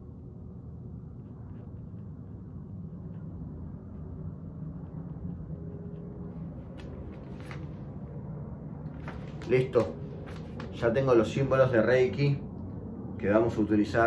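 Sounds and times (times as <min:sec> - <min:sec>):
low room hum: 0:00.0 - 0:14.0
paper cards rustling: 0:06.6 - 0:07.8, 0:09.0 - 0:10.8.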